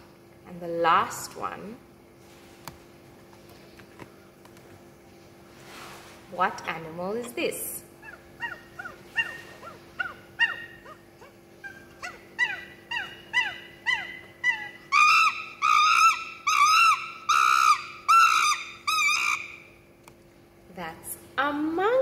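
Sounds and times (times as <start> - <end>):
monkey calls: 7.2 - 19.7.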